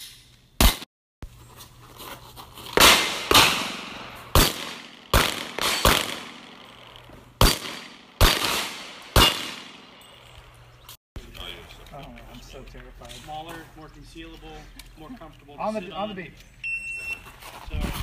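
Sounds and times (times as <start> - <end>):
pistol shots echoing: 2.8 - 10.0.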